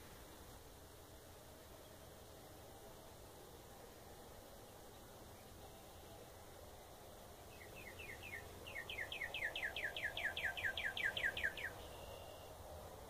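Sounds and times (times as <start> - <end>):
songbird trill: 4.6 - 6.4, 7.4 - 12.8.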